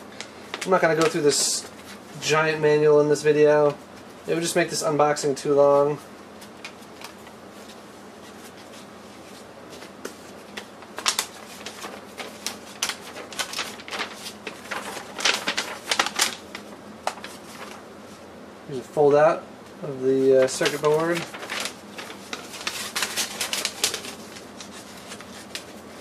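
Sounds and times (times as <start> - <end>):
paper rustling and crackling: 0.2 - 2.3, 5.8 - 18.2, 20.0 - 26.0.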